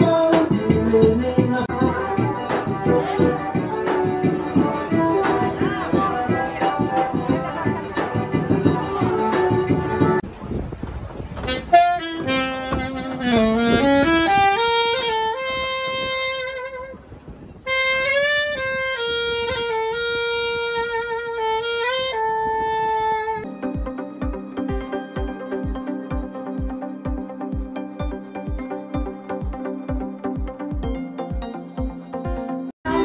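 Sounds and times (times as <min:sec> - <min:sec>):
solo saxophone slow melody: 0:00.0 - 0:08.1, 0:11.4 - 0:31.3
zabumba drum: 0:00.0 - 0:10.2.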